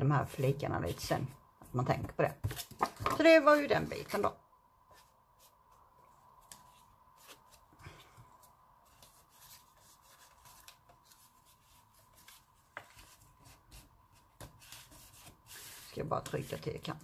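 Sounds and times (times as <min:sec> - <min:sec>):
cardstock rustling and tapping: 0:02.0 - 0:03.7, 0:08.9 - 0:17.0.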